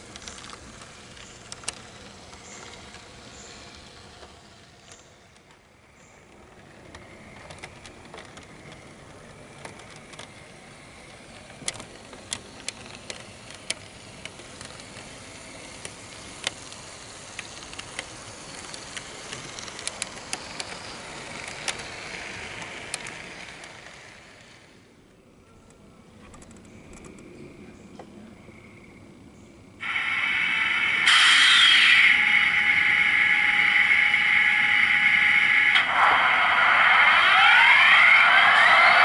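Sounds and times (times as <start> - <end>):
model train motor and wheels: 0.0 - 27.4, 29.1 - 39.0
wheels clicking over rail joints: 0.0 - 28.3.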